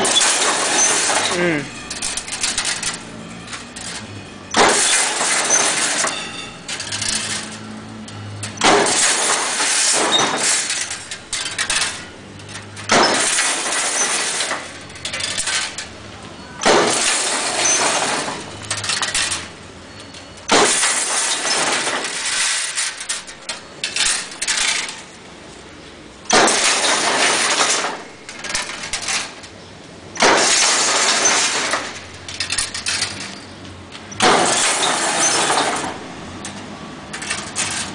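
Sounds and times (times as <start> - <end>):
weaving machine mechanical noise: 0.0 - 37.9.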